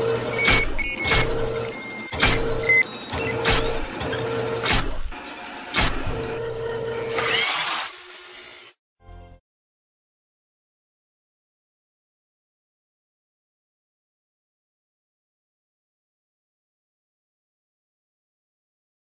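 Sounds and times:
steady machine hum: 0.0s - 7.4s
sharp mechanical hits: 0.0s - 7.9s.

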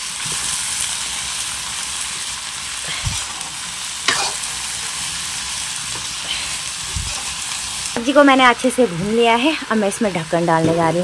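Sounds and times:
vegetables sizzling in a pan: 0.0s - 11.0s
ladle scraping a pan: 4.1s - 4.5s.

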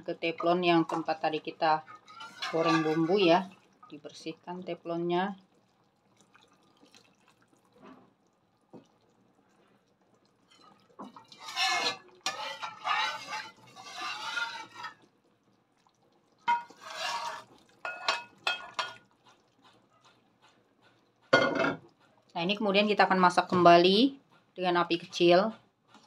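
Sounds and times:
broth pouring and splashing: 1.0s - 20.3s
ladle clinking against pan: 16.5s - 19.0s.

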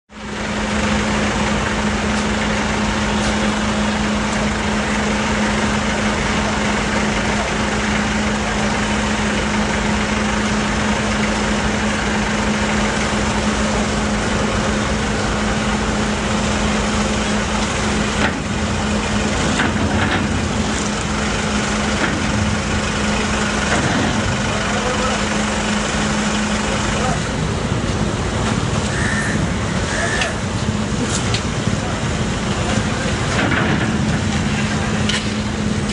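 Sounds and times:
ferry engine idling: 0.1s - 35.9s.

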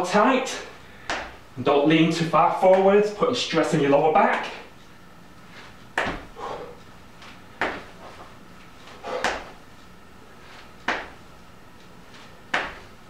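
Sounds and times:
feet thudding on exercise mat: 1.0s - 1.4s, 5.5s - 9.6s, 10.4s - 11.2s, 12.1s - 13.0s.

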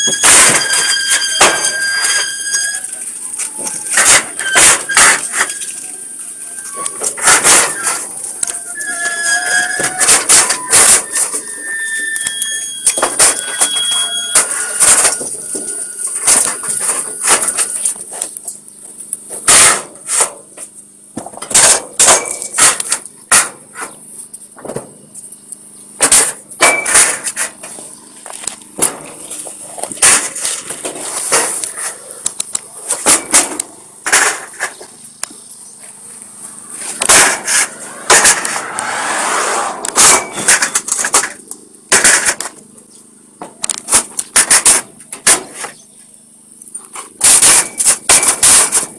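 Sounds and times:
metal clanks and knocks: 0.0s - 6.0s, 6.6s - 11.5s, 12.2s - 18.2s, 26.0s - 27.9s, 32.9s - 34.9s, 37.0s - 38.8s, 39.8s - 42.6s, 43.4s - 45.6s, 47.2s - 48.9s
high squeal: 0.0s - 18.0s, 35.7s - 41.0s.

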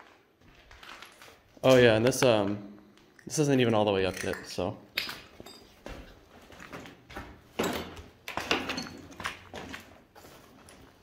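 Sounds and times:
footsteps on gritty floor: 5.3s - 11.0s.

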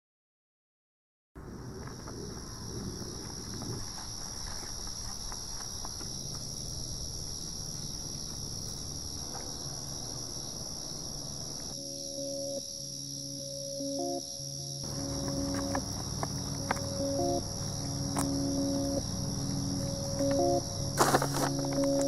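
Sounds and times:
insects chirring: 1.5s - 22.0s
low held music notes: 11.8s - 22.0s.

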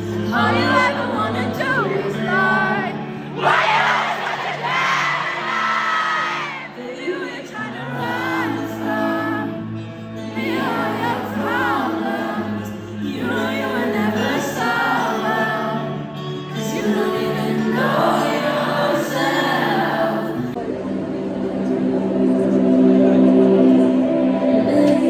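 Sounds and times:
woman singing into microphone: 0.0s - 3.2s, 6.6s - 20.6s, 24.3s - 25.0s
amplified backing music: 0.0s - 25.0s.

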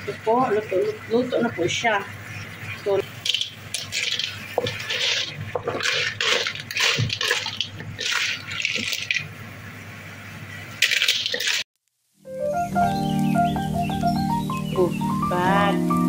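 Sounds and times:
wet clattering and sizzling: 0.0s - 11.8s
spatula stirring snails in sauce: 2.6s - 9.3s.

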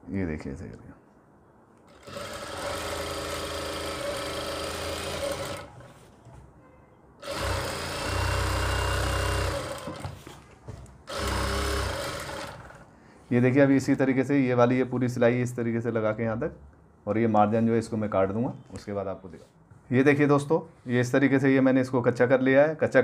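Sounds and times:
sewing machine stitching fabric: 1.9s - 6.0s, 7.2s - 10.4s, 11.1s - 12.9s.

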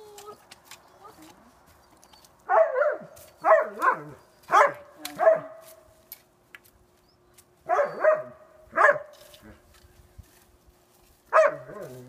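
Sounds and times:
dog barking: 2.5s - 5.6s, 7.7s - 9.1s, 11.3s - 11.8s.

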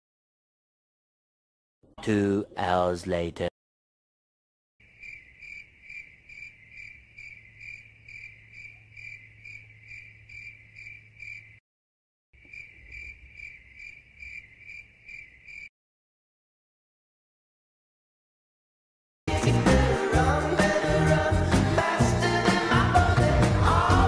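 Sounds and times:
cricket chirping: 4.8s - 11.6s, 12.4s - 15.7s.

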